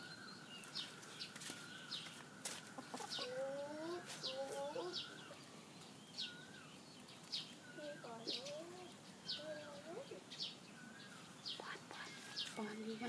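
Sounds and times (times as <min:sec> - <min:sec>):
small birds chirping: 0:00.0 - 0:13.0
whistled bird notes: 0:03.8 - 0:13.0.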